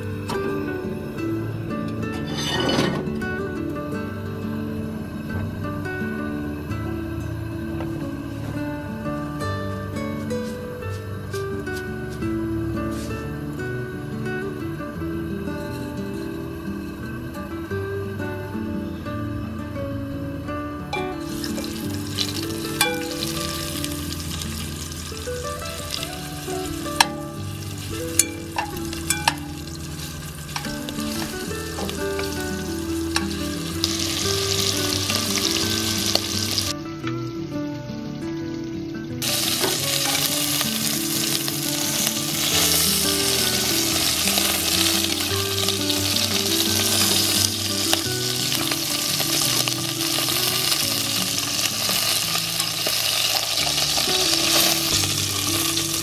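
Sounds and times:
meat sizzling in a pot: 0:20.9 - 0:36.8, 0:39.2 - 0:56.0
metal tongs clicking against pot: 0:28.2 - 0:29.6.

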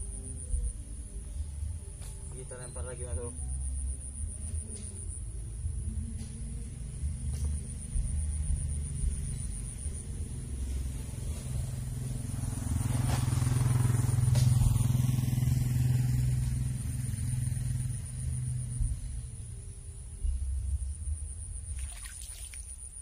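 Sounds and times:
motorcycle engine passing by: 0:06.1 - 0:21.0.

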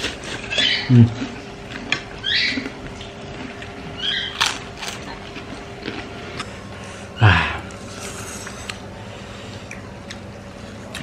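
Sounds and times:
chewing and mouth clicks: 0:00.0 - 0:06.5, 0:07.6 - 0:08.9, 0:09.5 - 0:11.0
low throat hum: 0:05.0 - 0:11.0.

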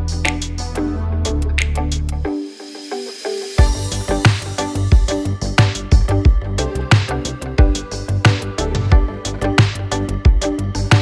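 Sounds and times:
synth melody: 0:00.0 - 0:11.0
kick drum beat: 0:03.6 - 0:11.0.

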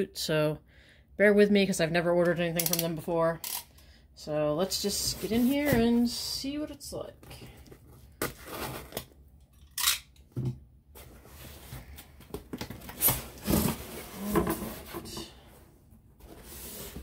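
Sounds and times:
cardboard box rustling and scraping: 0:04.9 - 0:06.2, 0:12.7 - 0:15.5, 0:16.2 - 0:17.0.

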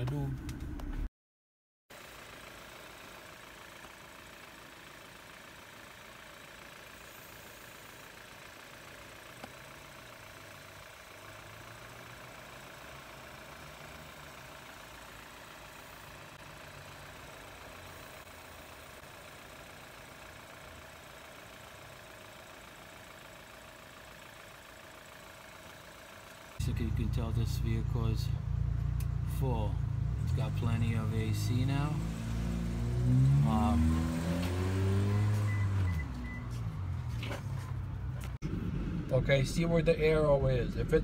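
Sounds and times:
car engine idling: 0:00.0 - 0:01.1, 0:02.0 - 0:41.0.

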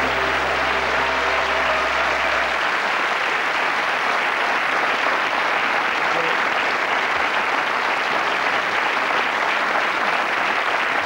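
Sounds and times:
low music notes: 0:00.0 - 0:03.1
audience applauding: 0:00.0 - 0:11.0.

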